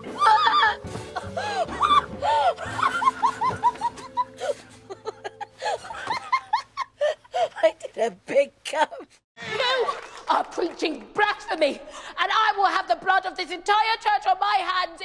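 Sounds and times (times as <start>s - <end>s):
soft background music: 0.0s - 6.6s
woman laughing: 0.2s - 8.0s.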